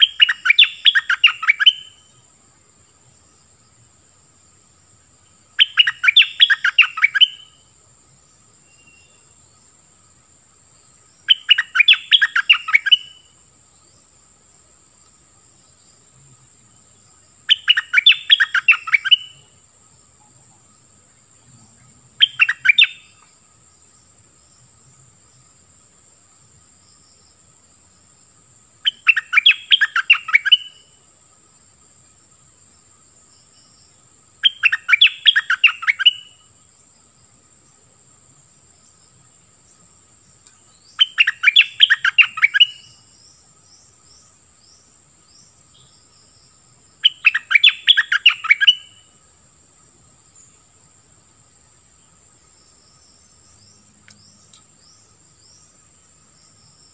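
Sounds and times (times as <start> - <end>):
bird chattering song: 0.0 - 2.0, 5.6 - 7.6, 11.2 - 13.2, 17.5 - 19.4, 22.2 - 23.2, 28.9 - 30.8, 34.4 - 36.4, 40.4 - 43.1, 47.0 - 49.0
high insect drone: 0.0 - 56.9.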